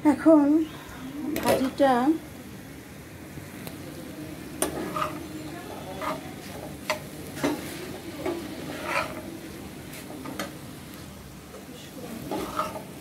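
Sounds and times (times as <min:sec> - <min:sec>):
oil sizzling: 0:00.1 - 0:13.0
spatula scraping frying pan: 0:04.6 - 0:10.5, 0:12.2 - 0:13.0.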